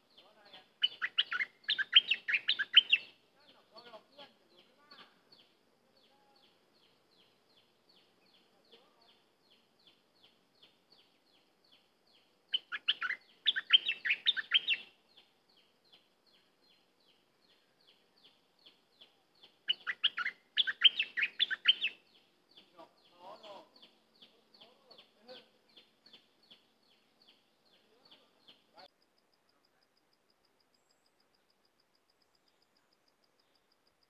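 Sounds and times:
bird warbling song: 0.0 - 28.9
bird chirping: 0.0 - 34.0.

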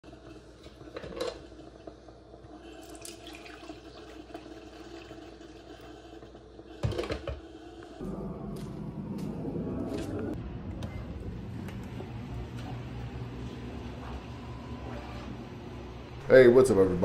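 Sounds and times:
coffee pouring into a mug: 0.1 - 6.9
low outdoor rumble: 8.0 - 17.0.

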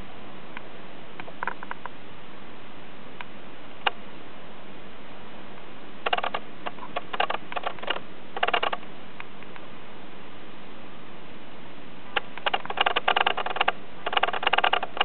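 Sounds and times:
steady hiss: 0.0 - 15.0
small clicks and ticks: 6.0 - 9.6, 12.2 - 15.0.

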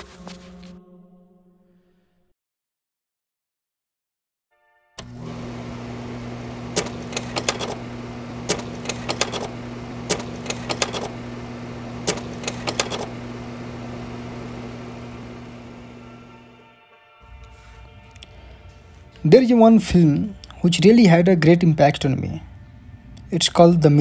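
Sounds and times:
machine clicking rattle: 5.0 - 13.4
machine humming: 5.0 - 16.6.

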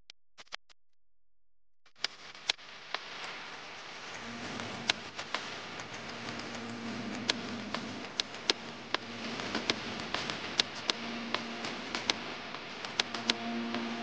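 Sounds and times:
low hum: 4.1 - 14.0.

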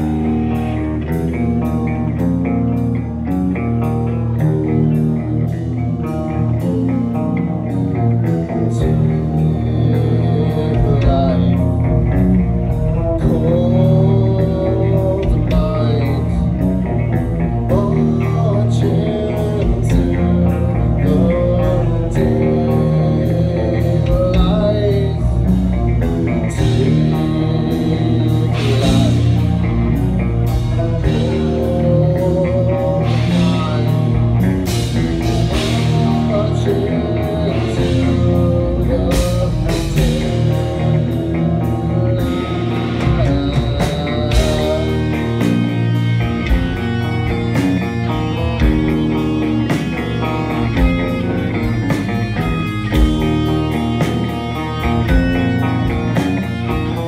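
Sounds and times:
live rock band playing: 0.0 - 57.0.

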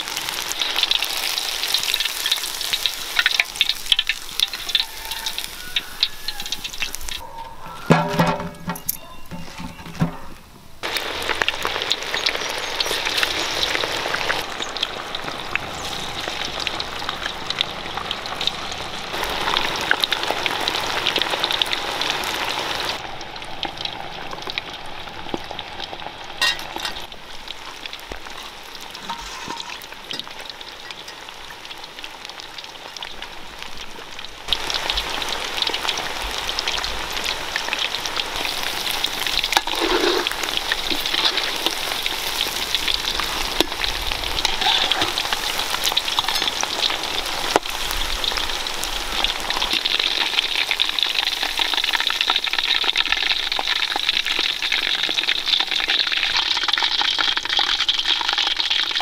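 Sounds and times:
chicken deep-frying in oil: 0.0 - 59.0.

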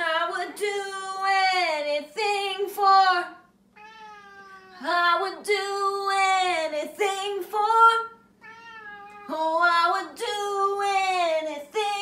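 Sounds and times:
cat meowing: 3.7 - 4.9, 8.4 - 9.4.

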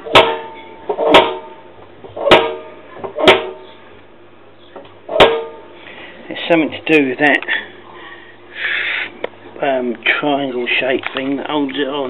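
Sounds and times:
washing machine drum clunking: 0.0 - 3.7, 5.1 - 5.6.

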